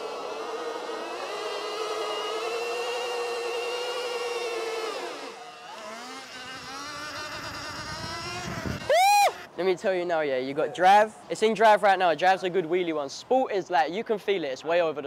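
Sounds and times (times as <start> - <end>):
electric motor whining: 0.0 - 9.5
tyre spinning in burnout: 0.0 - 9.5.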